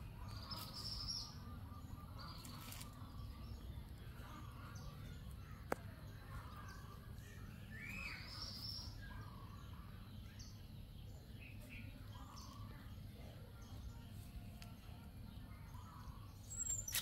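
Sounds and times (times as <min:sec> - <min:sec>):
low background noise: 0:00.0 - 0:17.0
small animal chirping and squeaking: 0:15.8 - 0:17.0.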